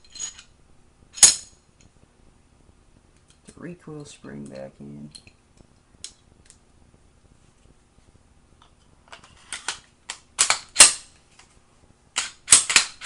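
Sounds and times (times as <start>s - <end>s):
pistol slide clicks and snaps: 12.2s - 13.0s.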